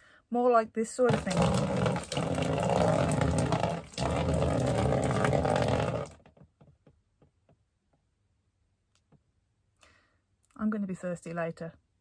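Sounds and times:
water pouring and splashing: 1.1s - 6.4s.

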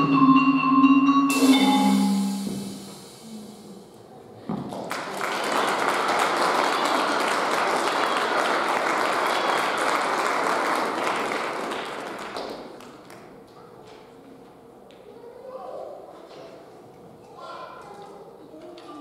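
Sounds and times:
audience applauding: 4.8s - 13.2s.

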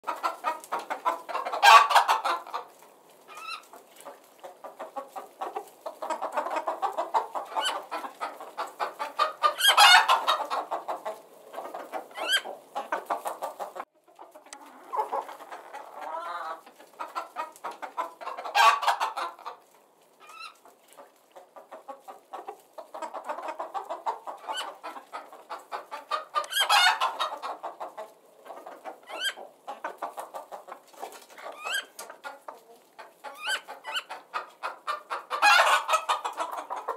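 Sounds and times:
chickens clucking: 0.0s - 36.9s
chicken squawking: 0.1s - 2.7s, 3.3s - 19.6s, 20.2s - 20.6s, 21.6s - 36.9s.

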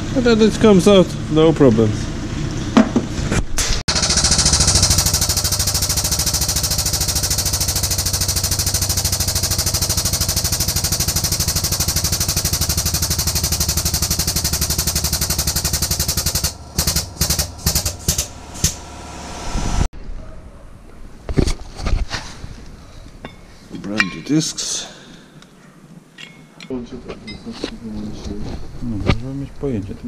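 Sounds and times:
pneumatic air chisel hammering: 3.6s - 19.0s.

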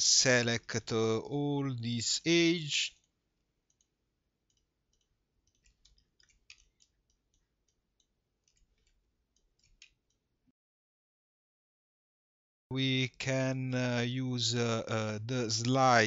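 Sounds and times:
faint computer mouse clicks: 4.5s - 10.2s.

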